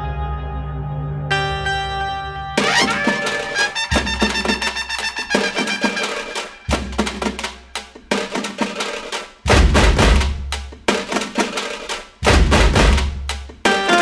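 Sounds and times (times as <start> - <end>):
music with percussion beat: 2.6 - 14.0
deep bass hits: 9.5 - 10.6.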